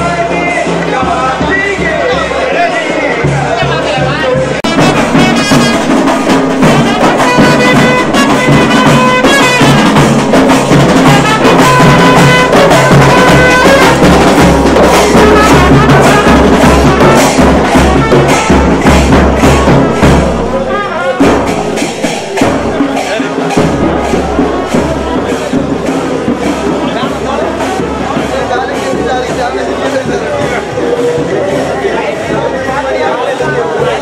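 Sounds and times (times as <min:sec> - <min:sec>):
loud fast drumming: 0:00.0 - 0:34.0
trumpet melody: 0:04.5 - 0:26.0.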